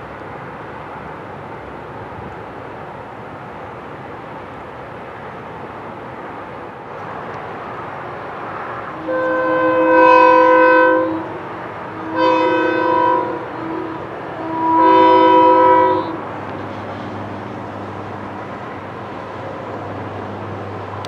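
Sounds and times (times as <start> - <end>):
train horn blasts: 8.9 - 16.3.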